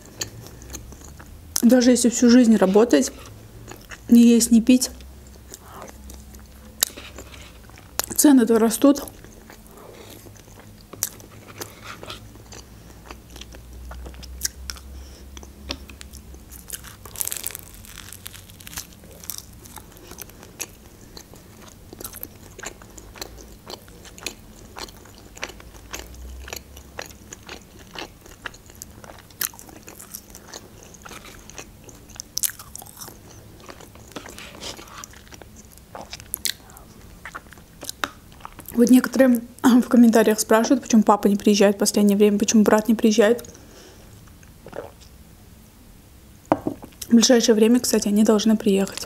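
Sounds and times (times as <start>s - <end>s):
chewing: 9.0s - 38.8s.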